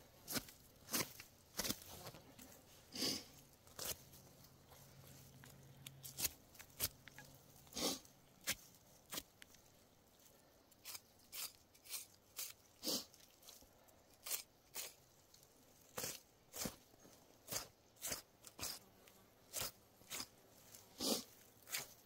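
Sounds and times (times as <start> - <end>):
knife slicing hide: 10.8 - 13.1, 14.2 - 15.0, 17.5 - 18.8, 19.5 - 20.3.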